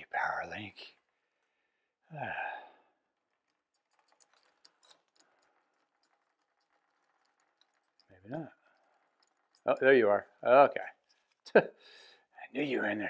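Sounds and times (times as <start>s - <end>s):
man sighing: 2.0s - 2.9s
bicycle chain clicks: 3.4s - 10.1s.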